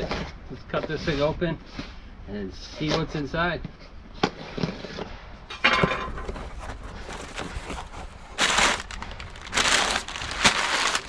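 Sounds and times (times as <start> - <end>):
packing paper crinkling: 6.6 - 11.0.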